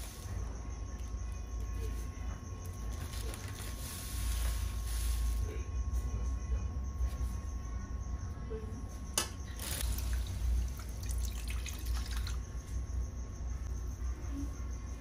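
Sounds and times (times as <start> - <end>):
steady low hum: 0.0 - 15.0
water pouring and splashing: 9.6 - 12.4.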